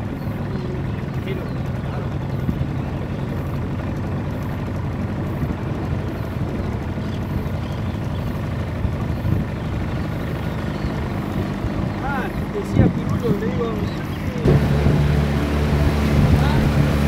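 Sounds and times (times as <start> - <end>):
outboard motor humming: 0.0 - 17.0
water wash: 11.0 - 17.0.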